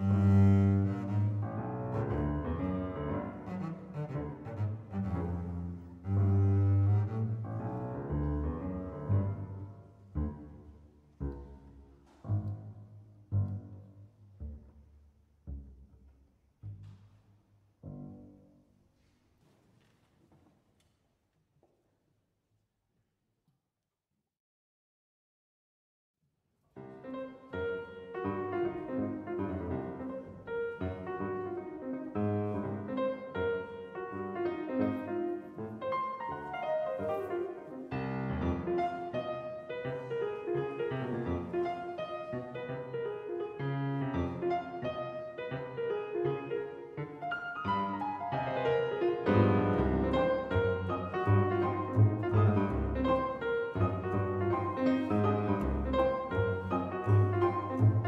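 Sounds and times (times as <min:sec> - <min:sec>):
piano music: 0:00.0 - 0:13.9, 0:26.8 - 0:58.0.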